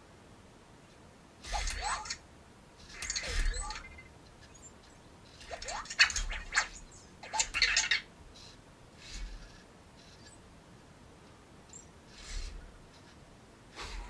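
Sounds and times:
small motors whirring: 0:01.4 - 0:02.2, 0:02.8 - 0:03.9, 0:05.3 - 0:10.4, 0:12.1 - 0:13.2.

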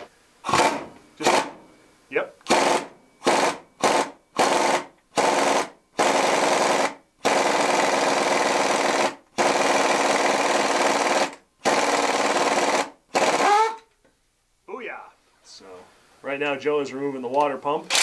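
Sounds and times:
pneumatic impact wrench hammering: 0:00.0 - 0:01.6, 0:02.4 - 0:13.8.

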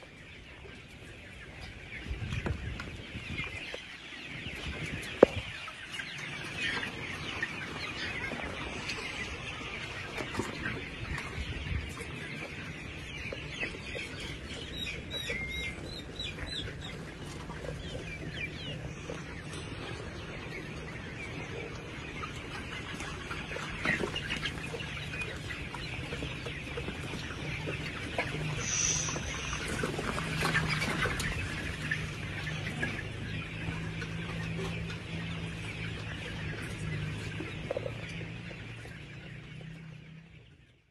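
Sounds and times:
chickens clucking: 0:00.0 - 0:40.9
louder chicken calls: 0:26.2 - 0:34.4.

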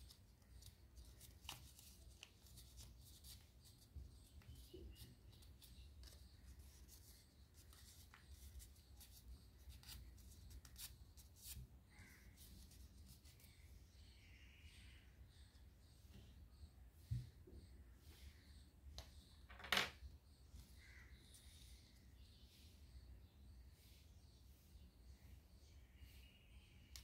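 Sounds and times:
paper crinkling while folded: 0:00.0 - 0:13.0.

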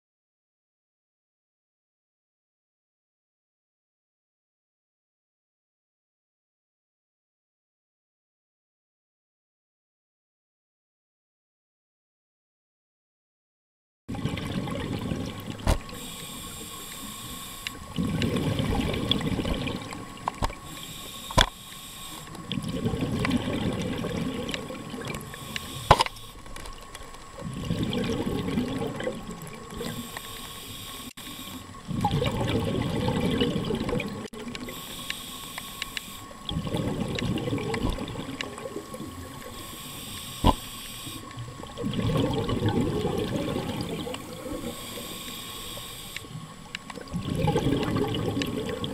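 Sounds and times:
exhaled bubbles gushing underwater: 0:14.1 - 0:21.4, 0:22.1 - 0:35.0, 0:36.2 - 0:48.9
faint steady whine: 0:14.1 - 0:48.9
scuba inhalations: 0:15.8 - 0:19.9, 0:20.6 - 0:26.4, 0:29.7 - 0:33.6, 0:34.6 - 0:37.6, 0:39.4 - 0:41.3, 0:43.0 - 0:46.4.

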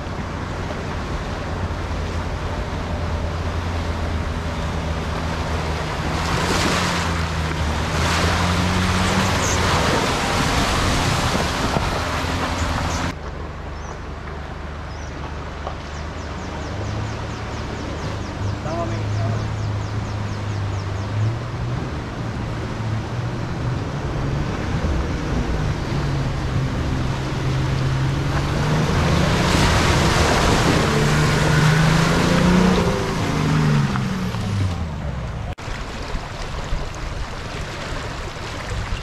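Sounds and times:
water rushing and splashing: 0:00.0 - 0:39.0.

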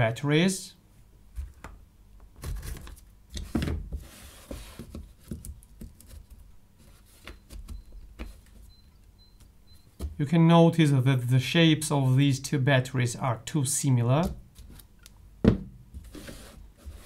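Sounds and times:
plastic rubbing scrape: 0:16.0 - 0:17.0.

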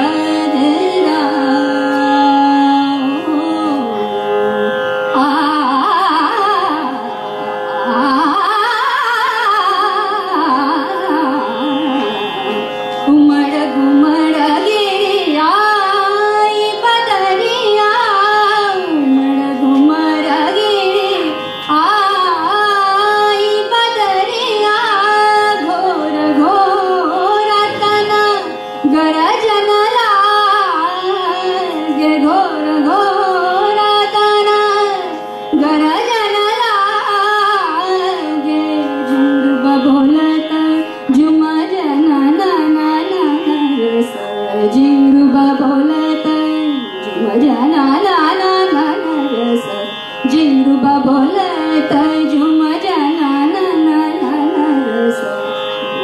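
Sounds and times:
woman singing classical melody: 0:00.0 - 0:56.0
steady drone: 0:26.6 - 0:28.6.

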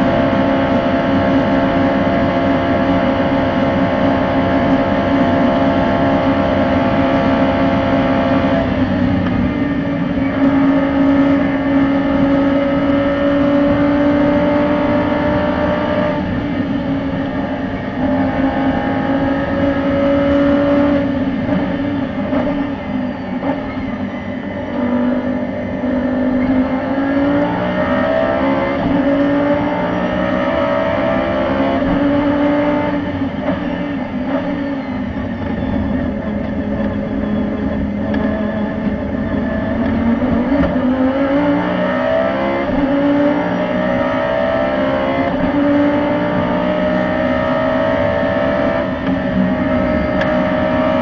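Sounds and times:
race car engine accelerating: 0:00.0 - 0:51.0.

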